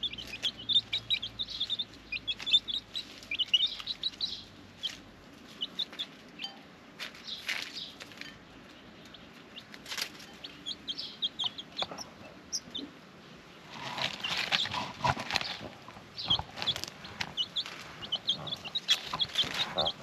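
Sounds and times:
rustling in dry leaves: 0.0s - 6.4s, 7.0s - 8.8s, 9.6s - 11.1s, 13.6s - 20.0s
chicks pecking: 0.0s - 20.0s
chicks peeping: 0.0s - 20.0s.

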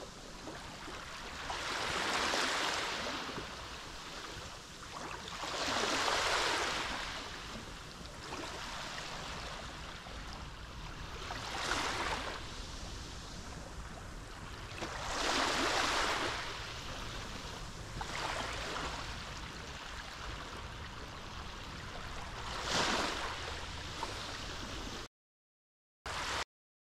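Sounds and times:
waves breaking: 0.0s - 25.1s, 26.1s - 26.4s.

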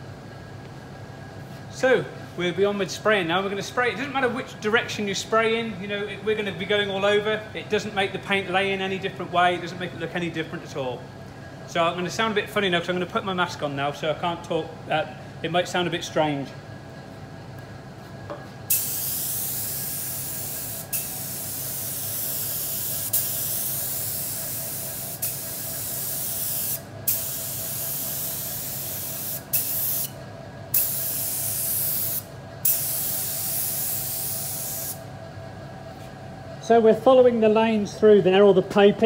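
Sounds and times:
spray gun hissing: 18.7s - 30.1s, 30.7s - 35.0s.

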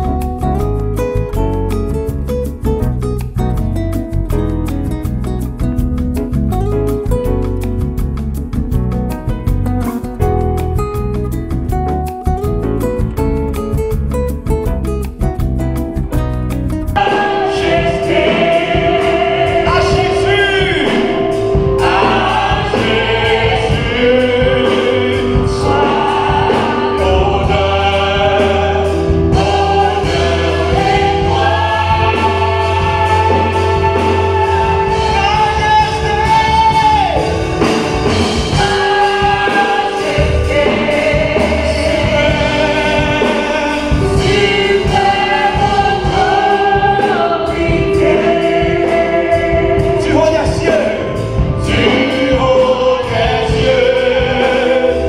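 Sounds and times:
instrumental accompaniment: 0.0s - 55.0s
choir singing gospel: 16.9s - 55.0s.

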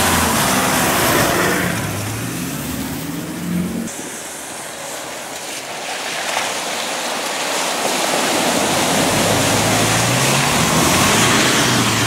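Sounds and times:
truck engine: 0.0s - 5.4s, 8.1s - 12.0s
water splashing and surging: 0.0s - 12.0s.

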